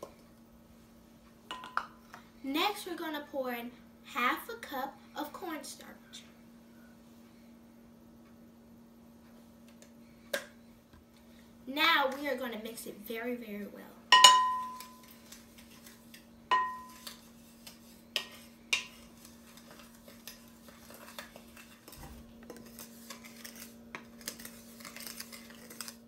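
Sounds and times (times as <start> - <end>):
faint steady hum: 0.0 - 26.0
spoon knocking glass bowl: 14.1 - 15.0, 16.5 - 17.0
glass bowl ringing: 14.1 - 15.1, 16.5 - 17.0.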